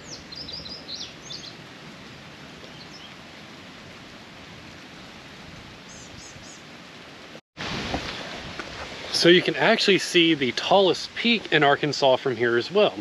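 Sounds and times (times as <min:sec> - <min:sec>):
bird chirps: 0:00.0 - 0:01.6
outdoor background hiss: 0:00.0 - 0:13.0.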